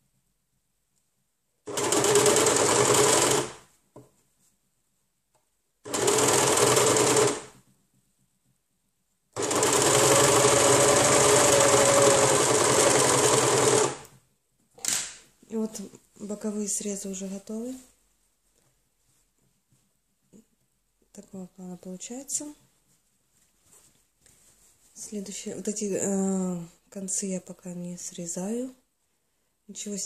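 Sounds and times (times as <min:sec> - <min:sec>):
overlock machine stitching: 0:01.7 - 0:03.6, 0:05.8 - 0:07.6, 0:09.4 - 0:14.1.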